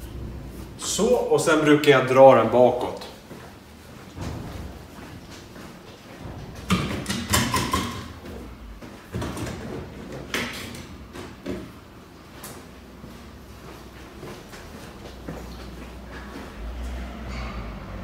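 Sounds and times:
knocks and bumps: 0:04.1 - 0:05.5, 0:06.1 - 0:11.7.

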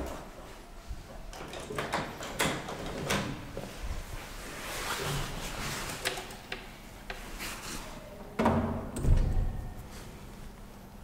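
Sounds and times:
elevator door clicks and knocks: 0:08.4 - 0:09.6.

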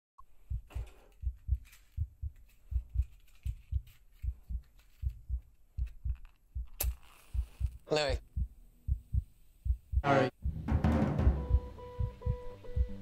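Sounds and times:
heartbeat thumps: 0:00.3 - 0:13.0.

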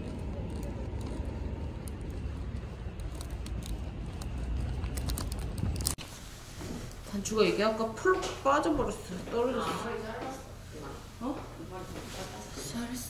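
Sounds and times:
low street noise rumble: 0:00.0 - 0:06.0.

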